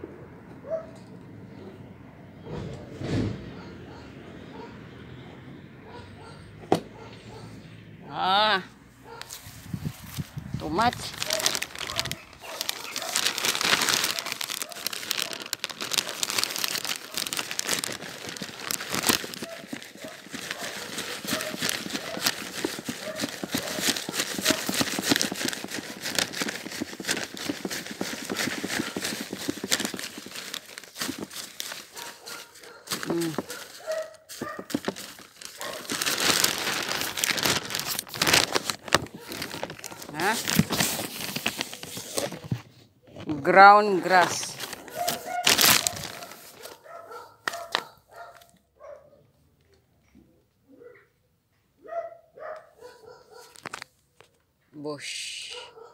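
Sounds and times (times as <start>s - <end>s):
plastic sheet crinkling: 9.2s - 42.7s, 43.4s - 48.5s, 53.3s - 53.9s.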